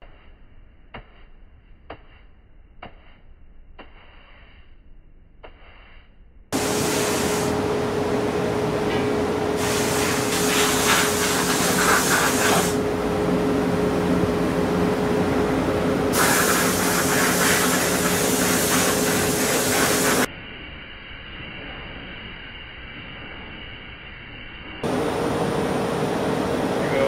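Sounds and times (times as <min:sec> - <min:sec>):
compressed air hissing: 0:05.6 - 0:07.6, 0:09.6 - 0:12.8, 0:16.1 - 0:20.3
steady machine hum: 0:06.6 - 0:20.3, 0:24.3 - 0:27.0.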